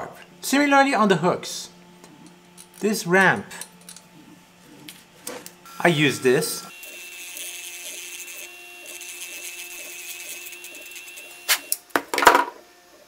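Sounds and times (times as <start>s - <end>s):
rotary tool whining: 3.5s - 11.9s.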